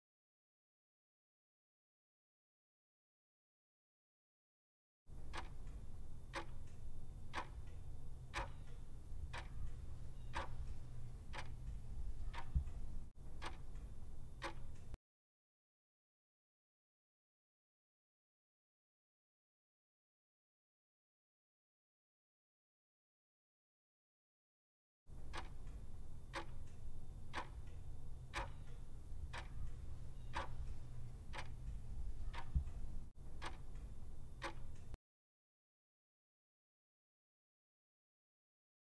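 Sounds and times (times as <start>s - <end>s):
low steady hum: 5.1s - 15.0s, 25.1s - 35.0s
clock ticking: 5.2s - 15.0s, 25.2s - 35.0s.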